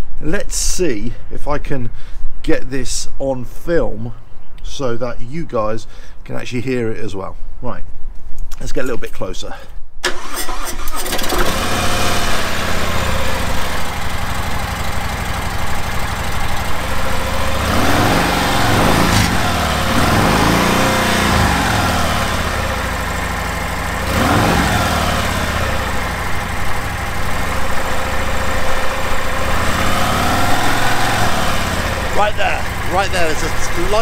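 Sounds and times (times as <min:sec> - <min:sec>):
motorcycle engine idling and revving: 0:11.1 - 0:34.0.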